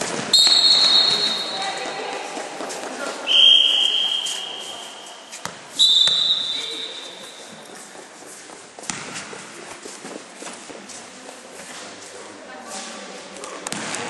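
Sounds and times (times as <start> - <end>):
ball bouncing on court: 0.0 - 3.0, 5.3 - 7.3, 8.8 - 9.5, 13.7 - 14.0
referee whistle blasts: 0.3 - 1.6, 3.3 - 7.2.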